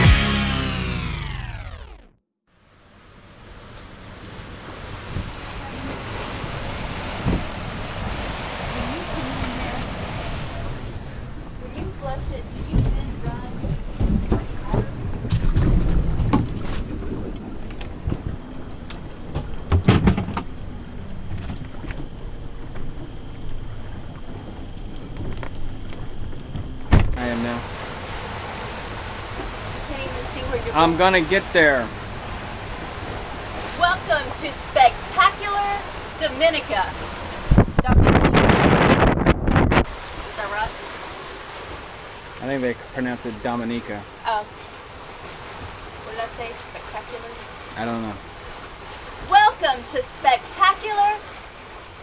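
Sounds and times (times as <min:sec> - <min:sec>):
low rumble of boat under way: 0:00.0 - 0:52.0
water rushing past hulls: 0:00.0 - 0:52.0
wind buffeting microphone: 0:04.2 - 0:31.1, 0:31.9 - 0:41.0
creaks and clicks: 0:15.2 - 0:20.6, 0:24.8 - 0:27.2
dull thump: 0:19.3 - 0:20.6, 0:26.6 - 0:27.2.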